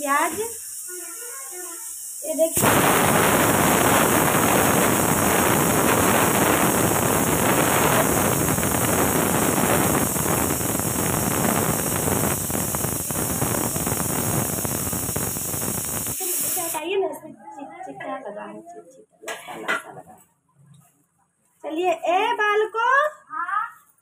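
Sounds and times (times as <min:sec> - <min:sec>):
air rushing over microphone: 0:02.6 - 0:16.8.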